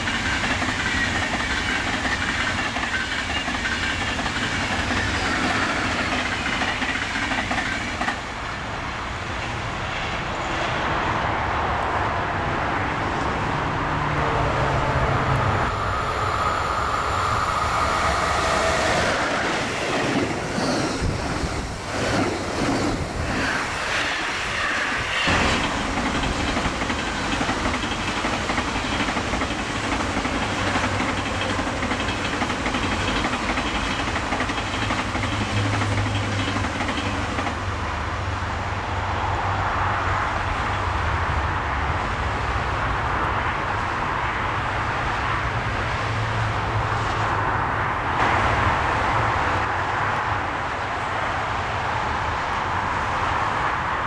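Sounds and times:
train wheels clattering over rail joints: 0.0 - 8.4, 18.8 - 37.7
train rolling rumble: 0.0 - 54.0.

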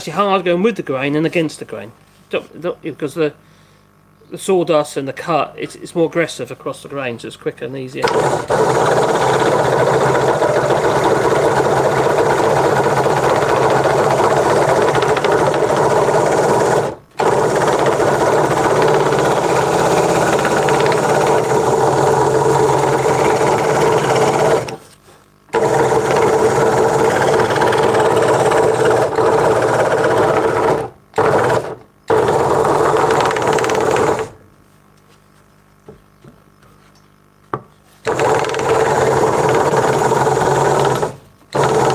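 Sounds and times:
scroll saw cutting wood: 8.0 - 24.8, 25.5 - 34.4, 38.0 - 41.9.

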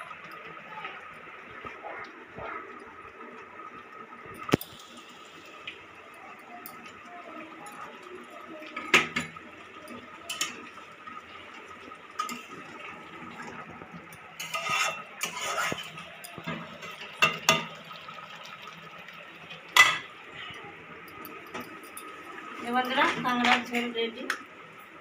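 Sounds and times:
metal spatula scraping a pan: 14.4 - 17.1
metal clanks on a pan: 14.4 - 17.8, 19.8 - 20.1.

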